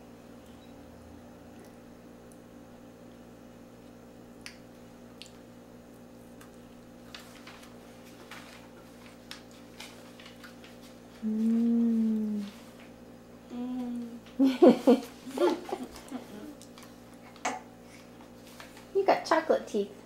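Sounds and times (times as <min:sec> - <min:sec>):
person humming: 0:11.2 - 0:12.7, 0:13.4 - 0:14.2.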